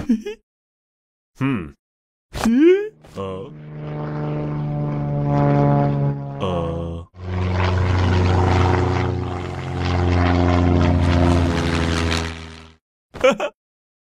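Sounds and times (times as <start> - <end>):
propeller airplane engine droning: 3.0 - 12.8.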